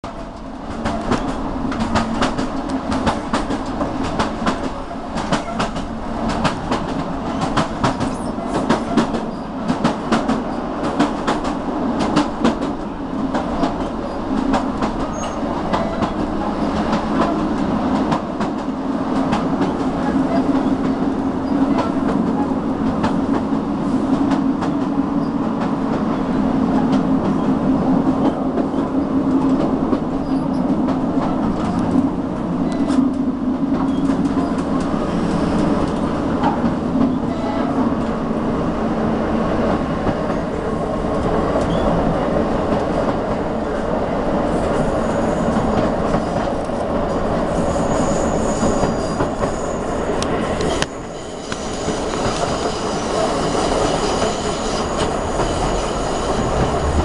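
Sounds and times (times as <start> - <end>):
train rumbling on rails: 0.0 - 57.0.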